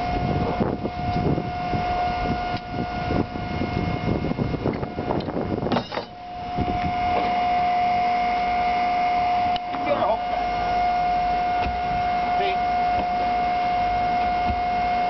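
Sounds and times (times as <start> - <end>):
crane hoist whine: 0.0 - 15.0
engine low rumble: 0.0 - 15.0.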